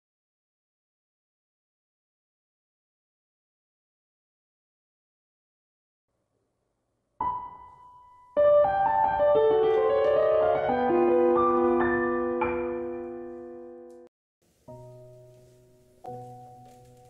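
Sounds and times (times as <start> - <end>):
piano theme music: 7.2 - 17.0.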